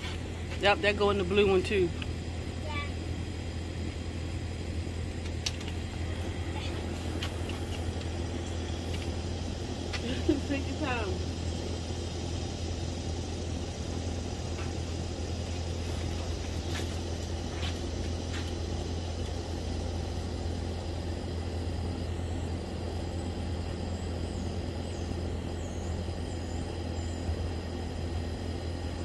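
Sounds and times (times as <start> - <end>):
low mechanical hum: 0.0 - 29.0.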